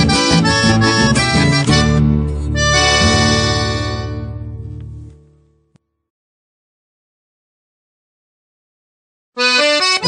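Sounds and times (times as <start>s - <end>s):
accordion chord: 0.0s - 5.8s, 9.4s - 10.0s.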